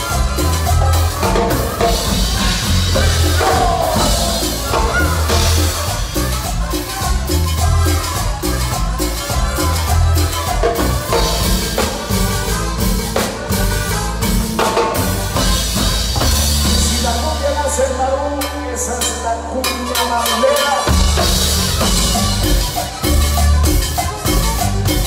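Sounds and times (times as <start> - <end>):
long held bass note: 0.0 - 8.1
congas: 0.0 - 25.0
latin band playing: 0.0 - 25.0.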